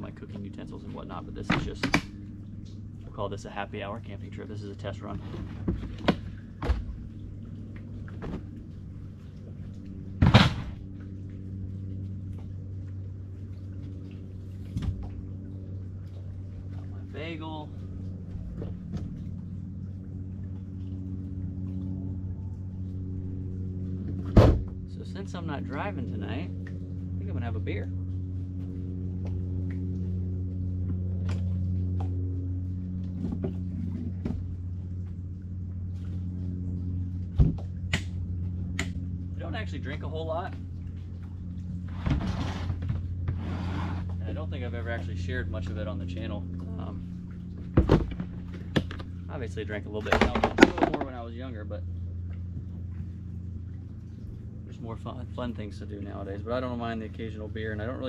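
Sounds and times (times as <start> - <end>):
steady low hum: 0.0 - 58.0
loud thump: 10.2 - 10.8, 24.3 - 24.7.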